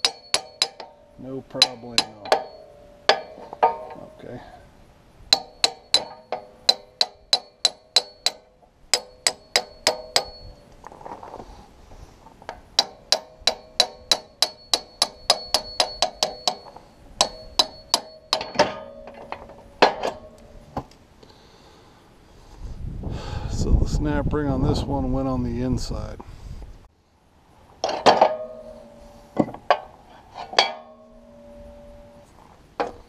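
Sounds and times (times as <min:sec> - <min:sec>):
hammer striking metal punch: 0:00.0 - 0:04.2, 0:05.3 - 0:10.7, 0:12.8 - 0:20.5.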